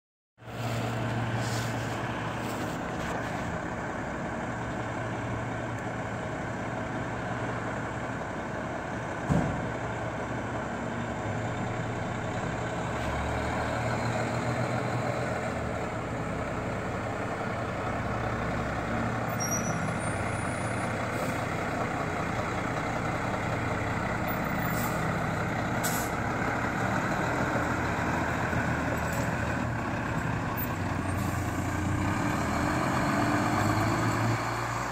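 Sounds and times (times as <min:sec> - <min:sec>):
fire engine idling: 0:00.5 - 0:13.0, 0:14.6 - 0:31.7
sharp knock: 0:09.3 - 0:09.6.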